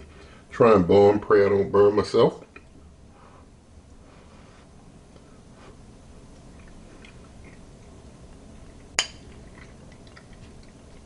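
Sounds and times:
utensil clinking against a dish: 9.0 - 10.7.

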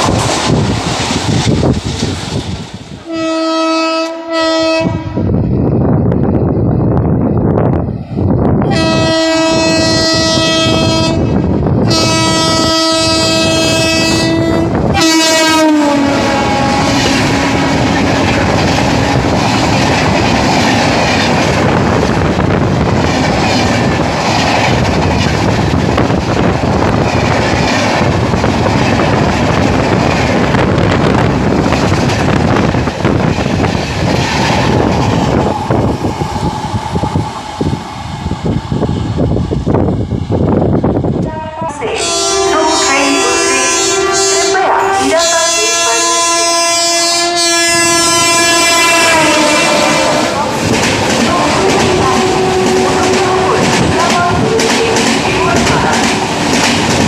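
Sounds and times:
train coaches rumbling past: 0.0 - 57.0
train horn blasts: 3.0 - 5.3, 8.6 - 19.3, 41.2 - 50.6, 51.3 - 56.1
wheels clacking over rail joints: 49.7 - 57.0.

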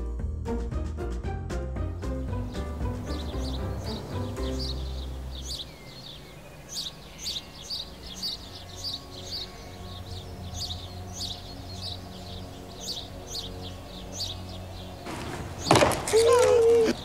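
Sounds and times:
soft background music: 0.0 - 17.0
small birds chirping: 1.8 - 17.0.

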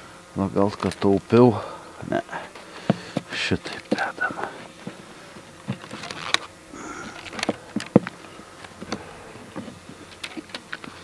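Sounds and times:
honeybees buzzing: 0.0 - 11.0
wooden hive frames knocking: 2.8 - 6.6, 7.2 - 11.0.

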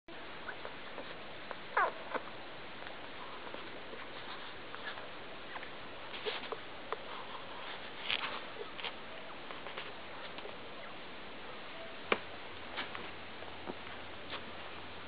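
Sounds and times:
puppies squeaking and snuffling: 0.4 - 2.4, 3.0 - 11.0.

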